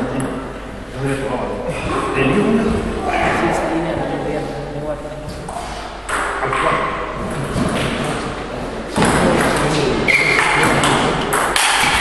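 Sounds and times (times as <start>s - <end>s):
table tennis ball knocking: 10.4s - 12.0s.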